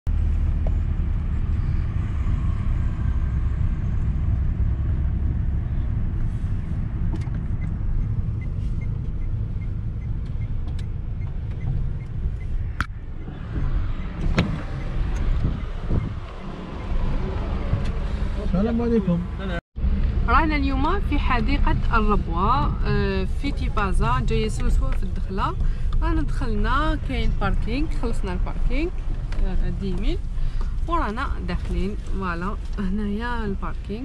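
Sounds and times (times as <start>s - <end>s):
car engine and road noise: 0.1s - 34.0s.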